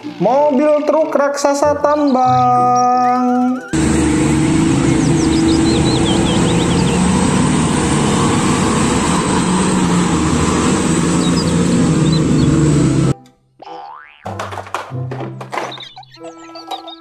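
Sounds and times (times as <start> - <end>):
haul truck diesel engine: 3.6 - 13.2
tyres rumbling on gravel: 3.8 - 13.2.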